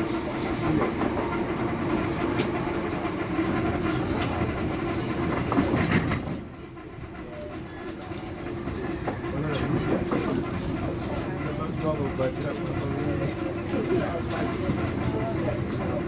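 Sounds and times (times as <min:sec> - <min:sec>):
train rolling rumble: 0:00.0 - 0:16.0.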